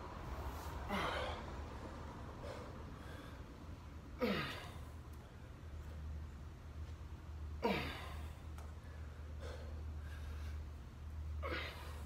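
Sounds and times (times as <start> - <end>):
steady low hum: 0.0 - 12.0
faint breaths: 0.3 - 3.9, 8.0 - 11.1.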